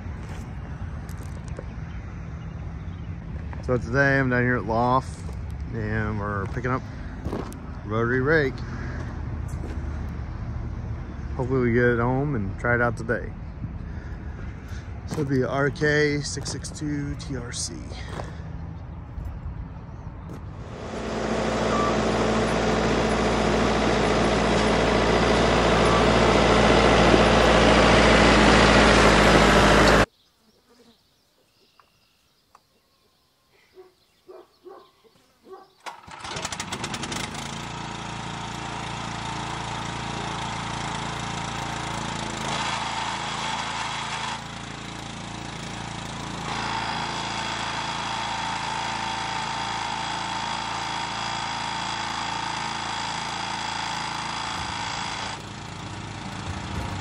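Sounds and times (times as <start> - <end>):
tractor engine running: 0.0 - 13.0, 13.8 - 19.4, 20.3 - 30.1, 35.8 - 57.0
pressure washer engine running: 20.6 - 30.1, 35.9 - 57.0.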